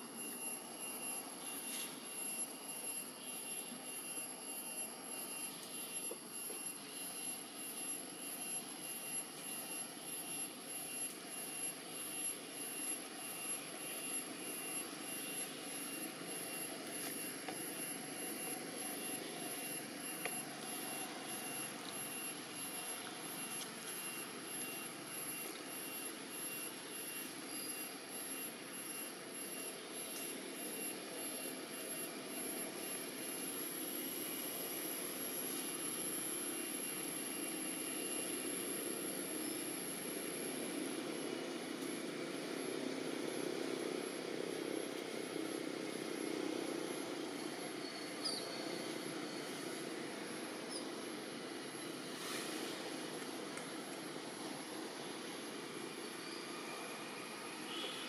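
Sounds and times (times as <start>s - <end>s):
thin high whine: 0.0s - 58.0s.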